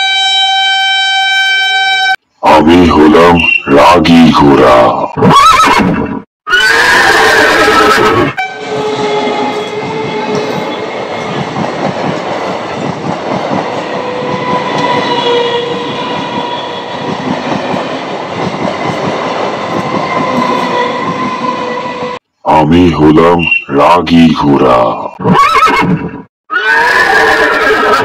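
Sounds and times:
electric train passing: 8.4s - 22.2s.

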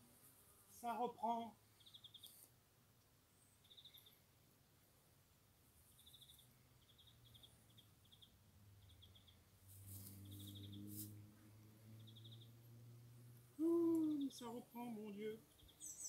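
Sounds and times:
faint high chirping trills: 1.4s - 2.5s, 3.3s - 4.3s, 5.8s - 11.0s, 11.9s - 12.7s, 13.6s - 16.0s.

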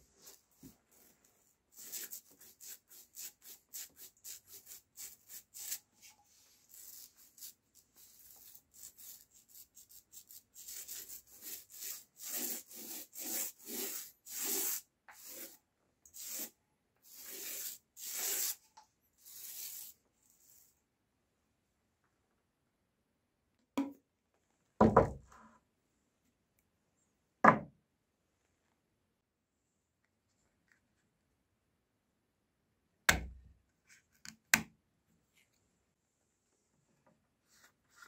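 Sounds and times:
paint roller rolling on wood: 11.3s - 20.4s.

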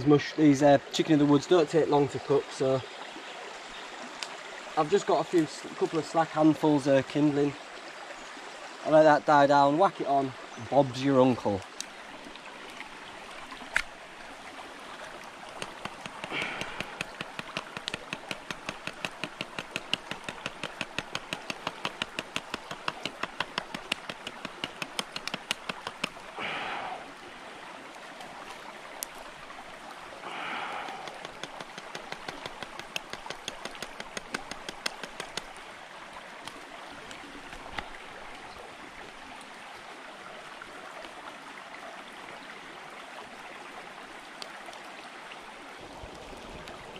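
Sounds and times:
shallow stream running: 0.0s - 46.9s
sharp evenly spaced clicks: 15.4s - 26.2s, 31.0s - 35.6s.

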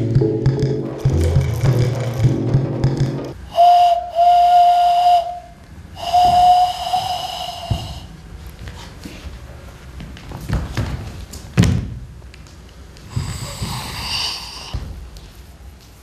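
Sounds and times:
breathy hand whistle hoots: 3.4s - 8.1s.

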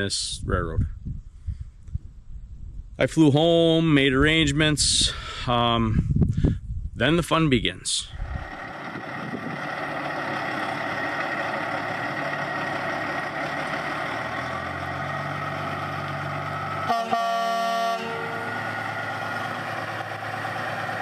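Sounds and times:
vehicle engine humming: 8.0s - 21.0s
horn blast: 16.8s - 18.6s.

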